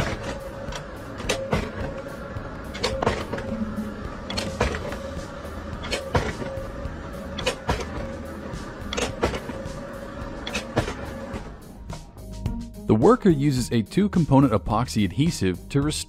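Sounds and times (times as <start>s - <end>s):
machine motor whine: 0.0s - 12.4s.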